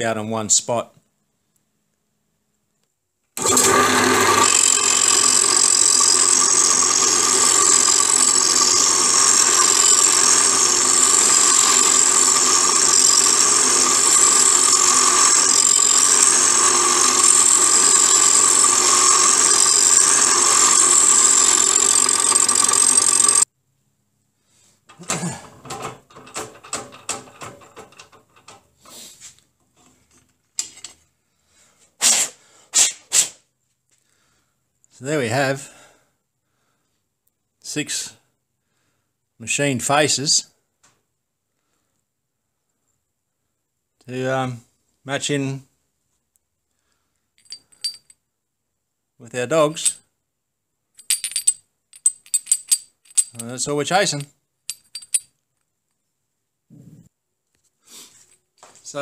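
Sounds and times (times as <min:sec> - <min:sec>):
pillar drill machining steel: 0:03.4 - 0:23.4
metal clicks and knocks: 0:24.9 - 0:28.8.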